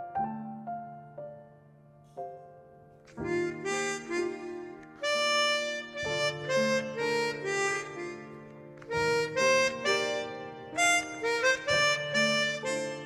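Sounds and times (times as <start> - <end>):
harmonica melody: 3.1 - 13.0
quiet band accompaniment: 3.2 - 13.0.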